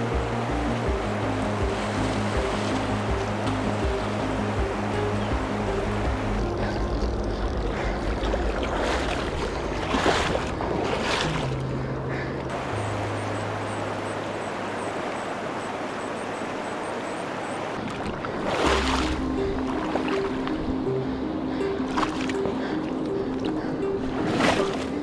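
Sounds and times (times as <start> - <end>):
river water rushing over rocks: 0.0 - 6.8
low bass music: 0.0 - 13.9, 18.6 - 25.0.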